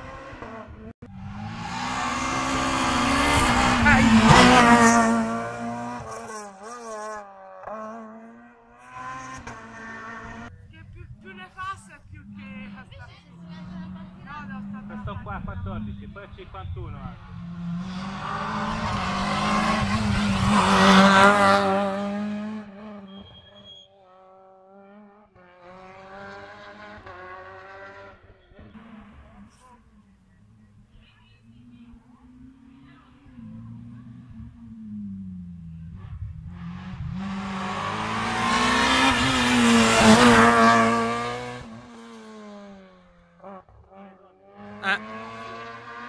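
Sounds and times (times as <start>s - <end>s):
rally car engine passing: 0.0s - 46.0s.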